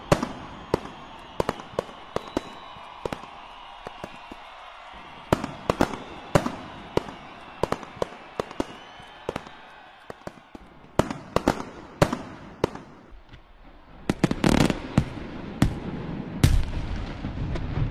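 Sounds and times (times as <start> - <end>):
fireworks bangs: 0.0 - 17.9.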